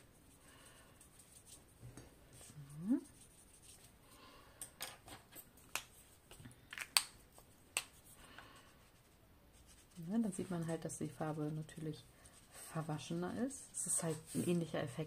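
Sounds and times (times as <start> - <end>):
plastic pens and caps clicking: 6.6 - 8.0.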